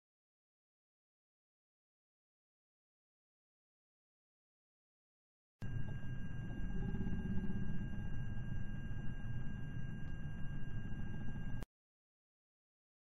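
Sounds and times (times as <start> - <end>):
high electronic whine: 5.6 - 11.7.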